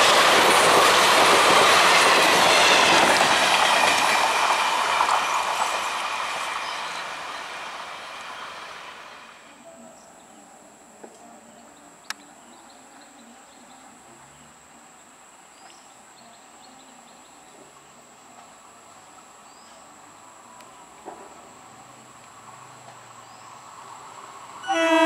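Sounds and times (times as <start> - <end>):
electric train rumble: 0.0 - 9.7, 18.5 - 25.0.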